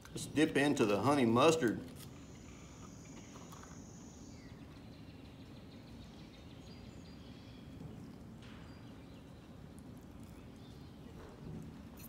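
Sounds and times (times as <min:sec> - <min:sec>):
faint chirps: 0:02.1 - 0:06.2.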